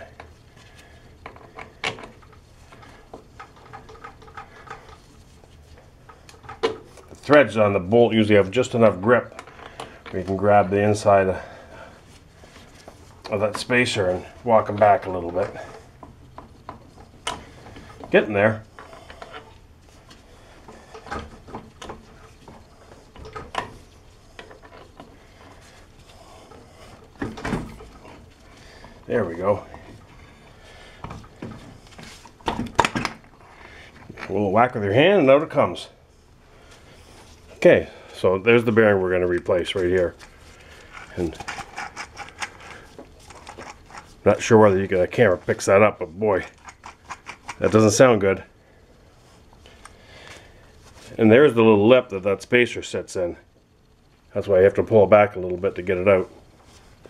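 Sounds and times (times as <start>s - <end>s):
metal clicks and scrapes: 39.8s - 44.3s, 46.4s - 48.0s
metal parts clicking: 46.4s - 48.0s.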